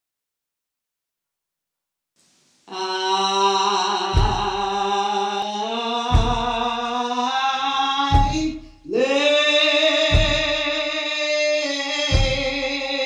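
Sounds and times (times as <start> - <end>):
people singing a hymn: 2.7 - 13.0
heavy foot stomps: 4.2 - 4.8, 6.1 - 6.8, 8.2 - 8.9, 10.2 - 10.8.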